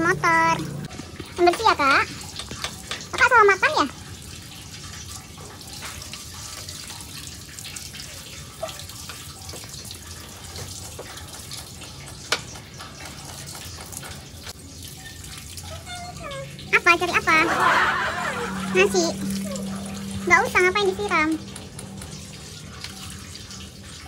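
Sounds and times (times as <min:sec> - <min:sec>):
water from hose splashing: 0:00.0 - 0:24.0.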